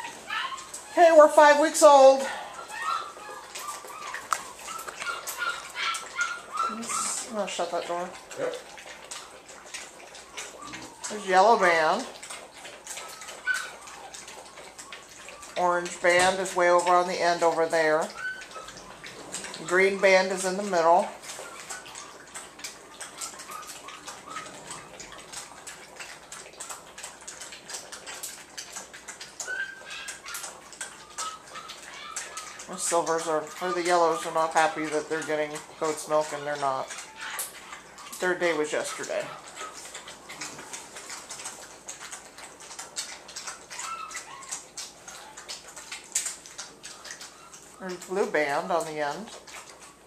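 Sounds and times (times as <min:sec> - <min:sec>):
faint puppy squeaks: 0:00.0 - 0:01.2, 0:02.2 - 0:07.3, 0:18.0 - 0:22.3, 0:29.4 - 0:32.7, 0:43.4 - 0:46.2
puppy whine: 0:00.0 - 0:01.2, 0:02.1 - 0:07.3, 0:08.2 - 0:16.8, 0:17.8 - 0:26.8, 0:29.0 - 0:48.1
puppies lapping milk: 0:00.0 - 0:50.0.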